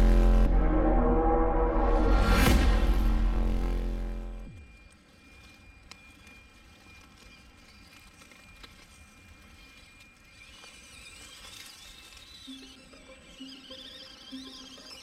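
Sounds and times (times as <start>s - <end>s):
low rumble: 0.0s - 4.8s
small electric motor whine: 3.4s - 15.0s.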